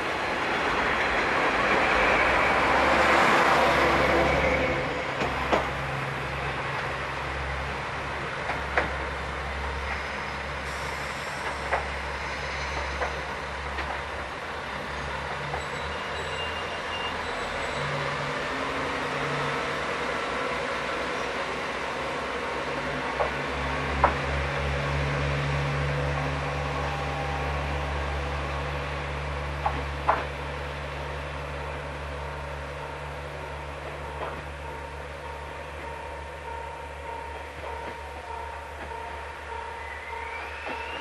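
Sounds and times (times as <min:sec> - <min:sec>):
diesel railcar engine drone: 0:00.0 - 0:41.0
train wheel and rail rush: 0:00.0 - 0:41.0
train wheel clicks: 0:11.4 - 0:12.0, 0:12.8 - 0:14.1, 0:23.1 - 0:23.4, 0:29.6 - 0:30.3, 0:33.8 - 0:34.5.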